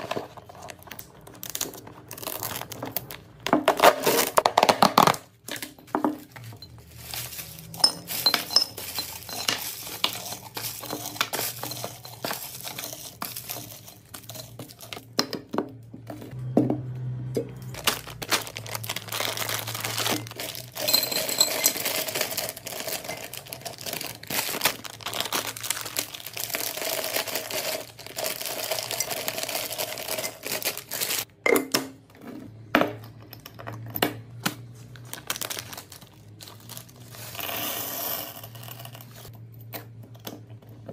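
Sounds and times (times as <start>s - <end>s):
plastic wrappers crinkling: 0.0s - 15.1s, 17.7s - 31.3s, 34.6s - 37.5s
wrapped candies poured into glass jar: 6.2s - 15.0s, 17.7s - 31.3s, 35.0s - 39.3s.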